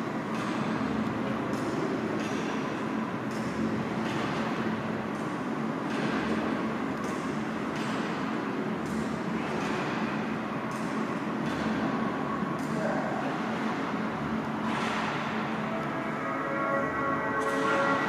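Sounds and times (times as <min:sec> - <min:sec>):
faint hum: 0:00.0 - 0:18.0
low rumbling background noise: 0:00.0 - 0:18.0.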